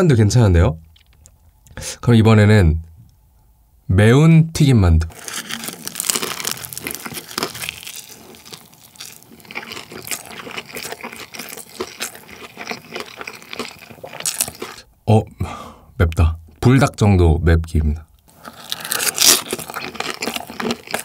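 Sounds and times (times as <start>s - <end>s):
crunching of fried dumpling: 5.1s - 14.9s, 18.2s - 21.0s.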